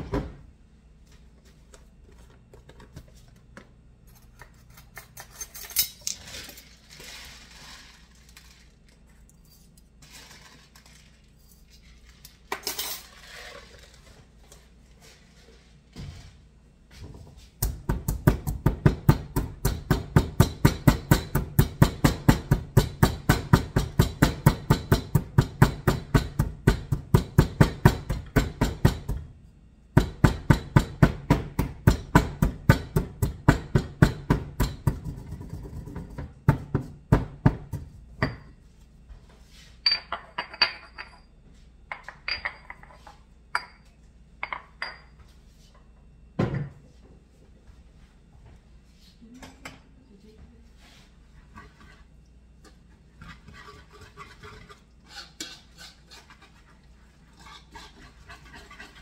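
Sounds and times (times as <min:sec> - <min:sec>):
stone pestle pounding in mortar: 0:17.6 - 0:29.3, 0:30.0 - 0:38.4.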